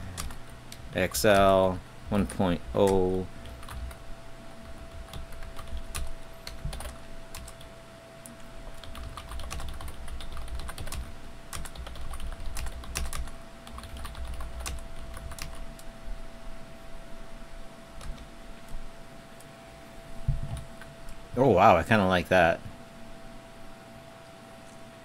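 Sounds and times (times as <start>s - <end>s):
faint steady hum: 0.0s - 25.0s
computer keyboard typing: 0.1s - 0.4s, 2.2s - 4.0s, 4.6s - 7.7s, 8.4s - 15.9s, 18.0s - 18.3s.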